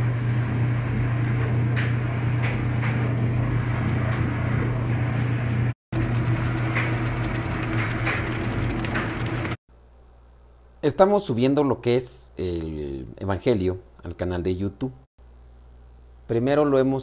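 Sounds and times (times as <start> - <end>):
washing machine running: 0.0 - 9.6.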